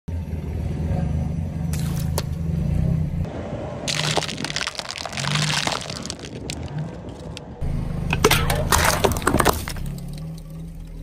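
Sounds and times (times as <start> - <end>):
tyre crushing chocolate eggs and plastic: 3.9 - 7.4, 8.2 - 10.0.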